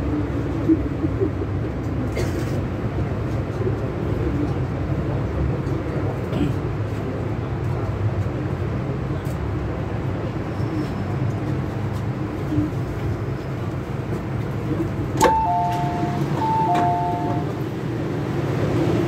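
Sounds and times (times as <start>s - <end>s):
train cabin rumbling: 0.0s - 19.0s
falling two-note door chime: 15.2s - 17.5s.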